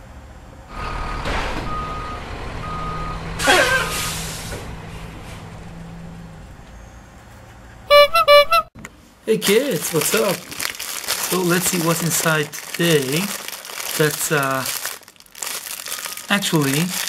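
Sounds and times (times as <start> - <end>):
truck reversing beeper: 0.7 - 7.2, 7.9 - 8.7
air brake hiss with squeal: 3.4 - 4.6.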